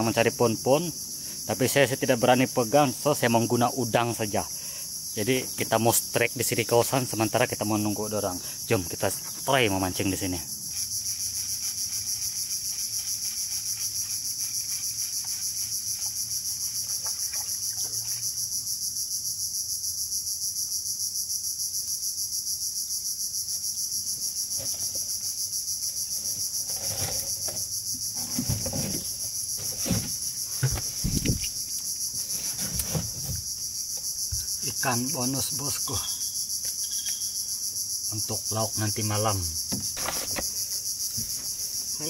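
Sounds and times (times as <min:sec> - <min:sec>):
insect chorus buzzing: 0:00.0 - 0:42.0
dull knocks and thumps: 0:26.8 - 0:31.6, 0:32.4 - 0:34.5, 0:39.7 - 0:40.5.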